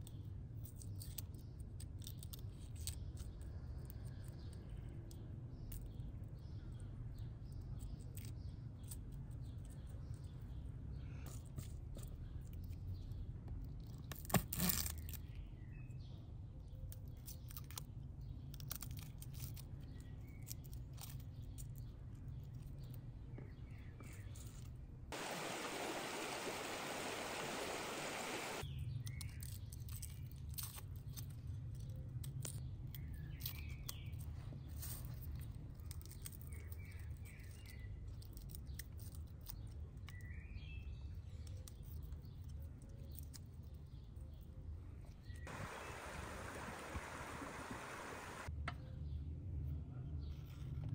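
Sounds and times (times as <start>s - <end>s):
songbirds chirping: 19.6s - 30.3s, 31.8s - 49.3s
stream running over rocks: 25.2s - 28.6s, 45.5s - 48.5s.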